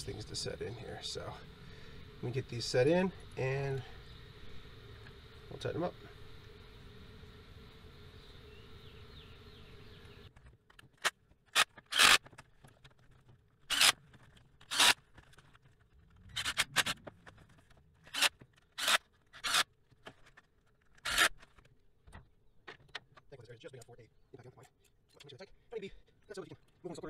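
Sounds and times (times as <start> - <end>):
faint steady hum: 0.0 - 27.0
cordless ratchet spurts: 11.5 - 12.5, 13.7 - 14.0, 14.6 - 15.0, 16.3 - 17.0, 18.0 - 19.7, 20.9 - 21.5.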